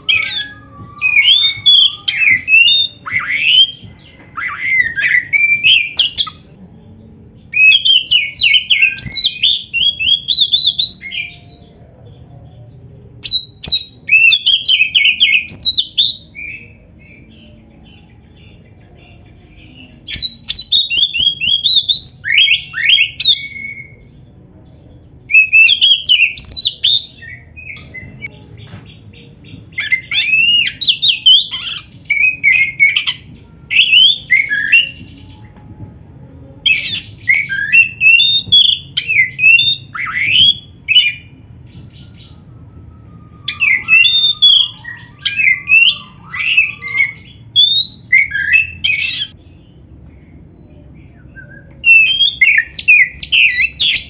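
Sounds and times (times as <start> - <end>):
bird singing varied whistles: 0.0 - 6.5, 13.3 - 17.3, 36.7 - 41.4, 43.2 - 49.4, 51.2 - 54.0
faint low hum: 27.0 - 52.6.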